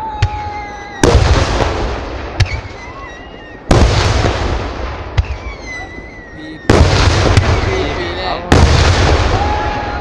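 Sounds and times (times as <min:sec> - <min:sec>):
firework booms: 0:00.1 - 0:10.0
firework cracks: 0:00.2 - 0:05.9, 0:06.7 - 0:10.0
firework whistling: 0:00.6 - 0:08.4.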